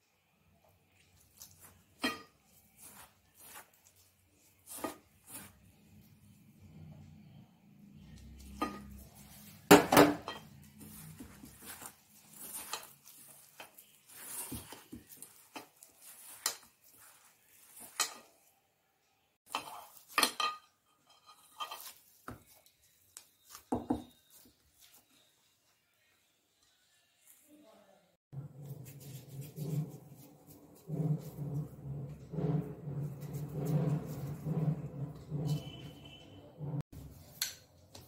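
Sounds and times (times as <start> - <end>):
dough rubbing: 0.8 - 7.0, 8.0 - 18.6, 28.3 - 38.0.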